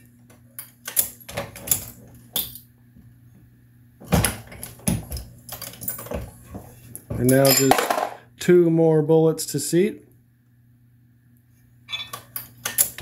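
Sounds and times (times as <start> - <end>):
bullets clinking in plastic bin: 7.2 - 8.2
reloading press clicking and clinking: 12.0 - 13.0.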